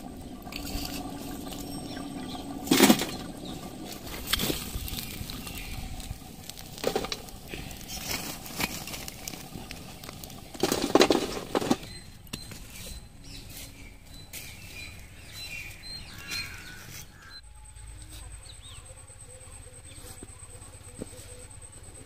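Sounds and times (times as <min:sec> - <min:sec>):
coals clattering on metal: 0:00.4 - 0:12.6.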